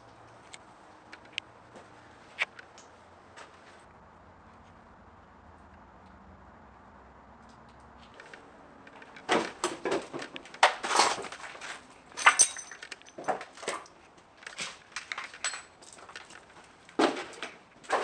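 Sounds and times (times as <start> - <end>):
footsteps crunching over debris: 9.0 - 12.0, 12.8 - 18.0.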